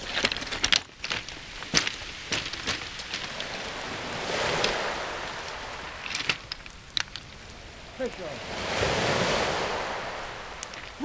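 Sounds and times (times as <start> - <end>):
pebbles clicking and cracking: 0.0 - 3.5, 6.0 - 7.5
wave hissing on shingle: 0.0 - 11.0.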